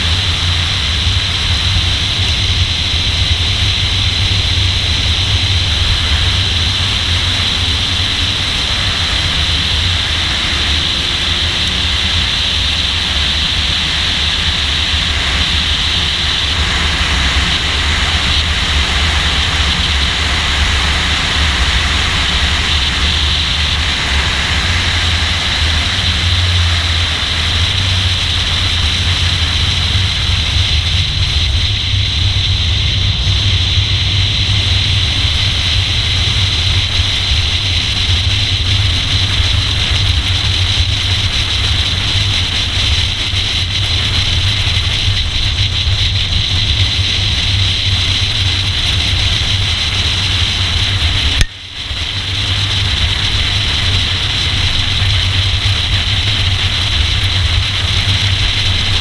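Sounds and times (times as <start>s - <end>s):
car engine droning: 0.0s - 59.0s
wind rushing over camera: 0.0s - 59.0s.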